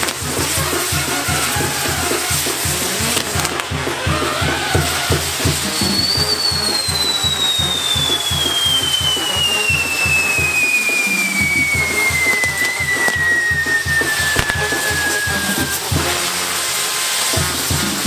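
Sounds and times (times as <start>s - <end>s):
firework whistle falling in pitch: 0.0s - 2.6s, 3.2s - 18.0s
low drum beat: 0.0s - 6.4s, 11.4s - 16.3s
firework hiss: 0.0s - 18.0s.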